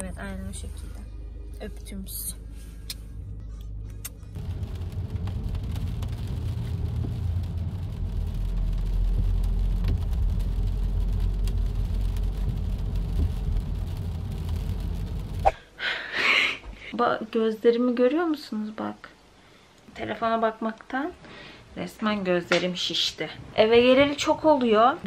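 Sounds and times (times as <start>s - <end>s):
car engine and road rumble: 0.0s - 15.6s
tyre hiss on wet road: 4.4s - 16.4s.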